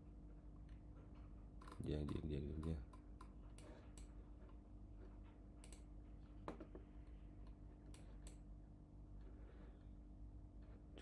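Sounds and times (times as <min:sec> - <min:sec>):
low steady hum: 0:00.0 - 0:11.0
computer mouse clicks: 0:05.6 - 0:05.9, 0:07.9 - 0:08.4.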